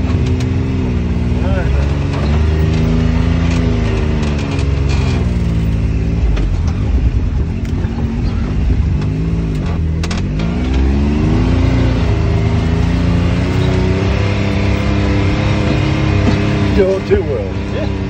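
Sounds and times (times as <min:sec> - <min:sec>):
utility vehicle engine rumbling: 0:00.0 - 0:18.0
knocks of vehicle bouncing: 0:15.4 - 0:17.2.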